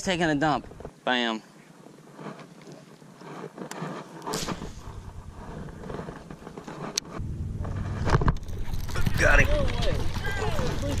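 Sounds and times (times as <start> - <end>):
wind rumbling on microphone: 4.3 - 11.0.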